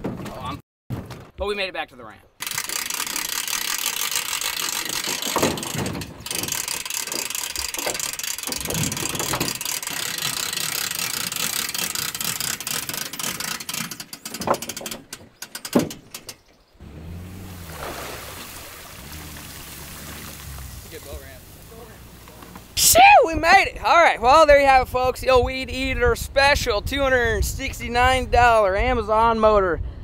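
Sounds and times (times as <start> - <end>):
hand winch ratcheting: 2.4 - 16.6
sharp knocks: 4.8 - 9.6, 13.3 - 16.4.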